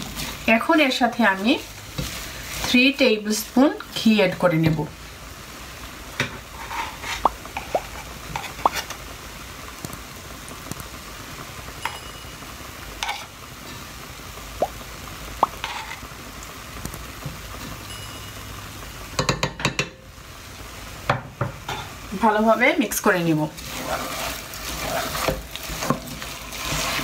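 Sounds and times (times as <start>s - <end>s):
small pops and clicks from pot: 9.8s - 10.0s, 10.6s - 10.9s, 16.8s - 17.4s
metal spoon scraping pot: 23.6s - 27.0s.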